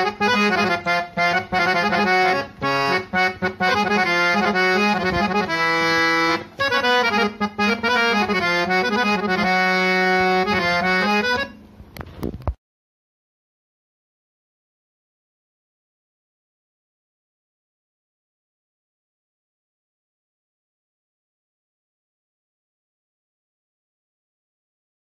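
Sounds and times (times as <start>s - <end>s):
harmonium melody with drone: 0.0s - 11.8s.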